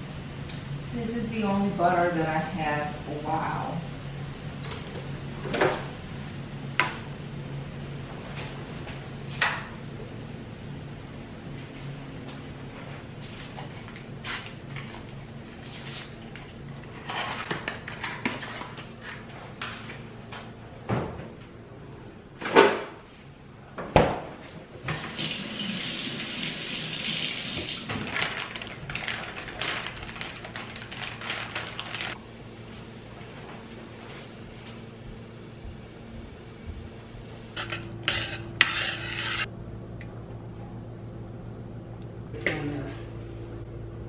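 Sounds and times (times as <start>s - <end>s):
water running: 25.1s - 27.9s.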